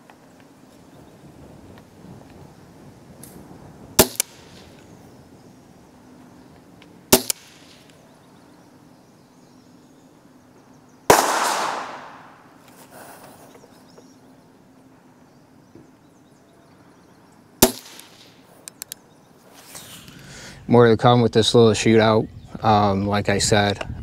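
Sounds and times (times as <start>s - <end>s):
rifle gunshots: 4.0s - 4.8s, 7.1s - 8.0s, 11.1s - 12.5s, 17.6s - 18.4s.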